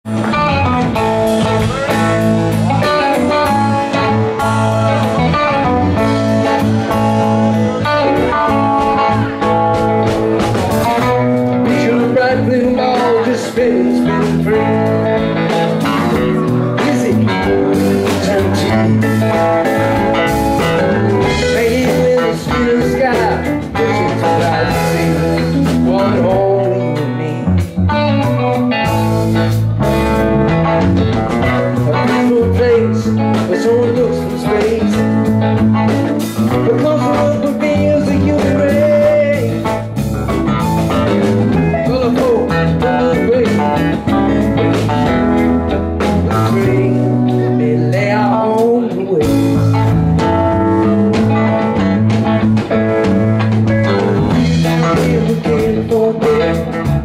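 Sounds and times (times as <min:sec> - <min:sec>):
rock band playing: 0:00.0 - 0:57.0
person singing: 0:00.1 - 0:30.3, 0:31.0 - 0:51.9, 0:53.8 - 0:57.0.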